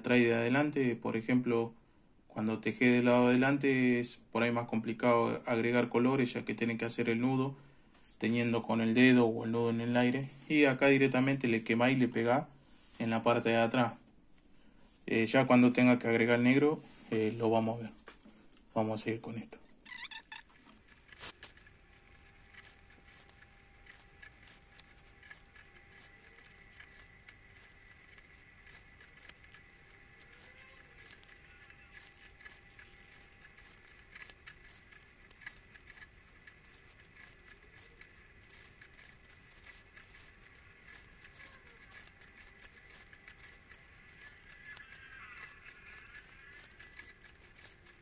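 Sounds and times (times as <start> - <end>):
thread clicks and rustles: 19.8 - 48.0.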